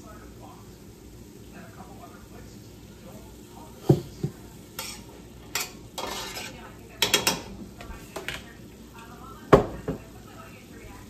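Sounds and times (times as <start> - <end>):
spoon scraping vegetables in pot: 4.2 - 8.4.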